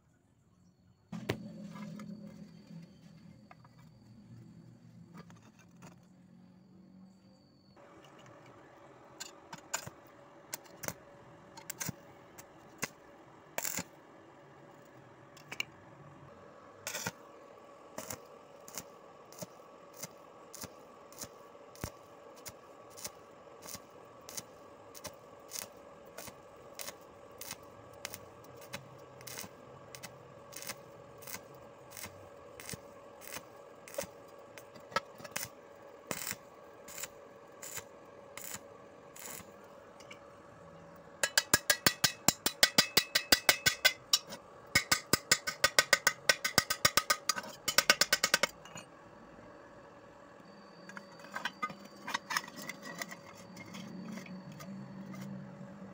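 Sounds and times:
faint steady hum: 0.0 - 55.9
welding arc bursts: 13.6 - 13.9, 18.0 - 39.6.

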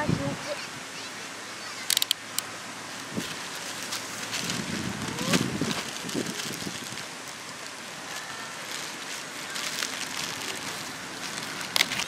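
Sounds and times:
steady outdoor hiss: 0.0 - 12.0
plastic packaging crinkling: 3.0 - 12.0.

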